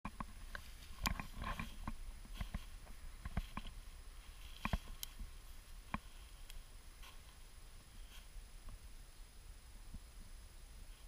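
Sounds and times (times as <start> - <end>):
crunching through snowy weeds: 0.3 - 8.5.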